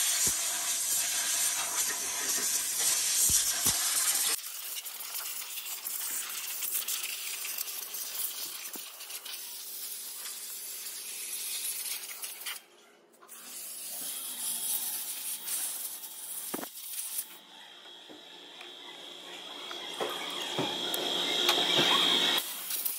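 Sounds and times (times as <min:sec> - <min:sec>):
compressed air blow gun hissing: 0:00.0 - 0:04.4.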